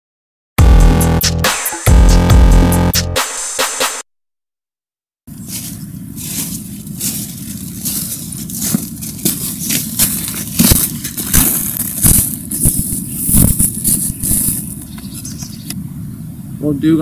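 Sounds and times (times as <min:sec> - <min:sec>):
footsteps crunching through dry leaves: 0:05.3 - 0:15.6.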